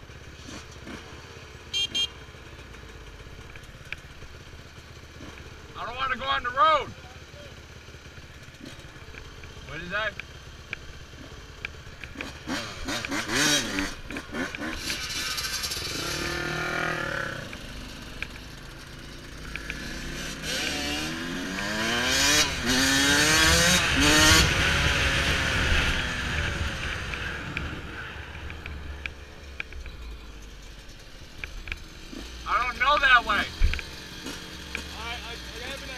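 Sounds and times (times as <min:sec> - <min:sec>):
dirt bike revving and accelerating: 0:00.4 - 0:02.1, 0:05.1 - 0:06.2, 0:08.4 - 0:09.2, 0:11.1 - 0:29.3, 0:31.3 - 0:35.9.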